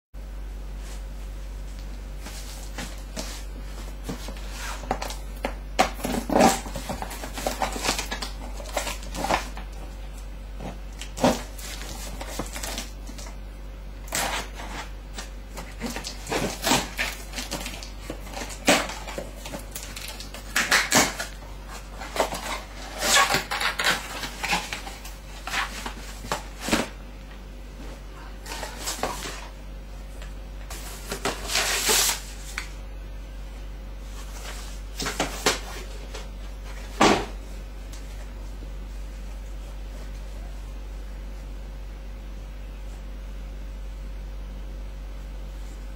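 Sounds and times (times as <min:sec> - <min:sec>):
low steady hum: 0:00.2 - 0:45.9
rustling of packaging: 0:02.2 - 0:13.4, 0:14.1 - 0:27.0, 0:28.4 - 0:29.6.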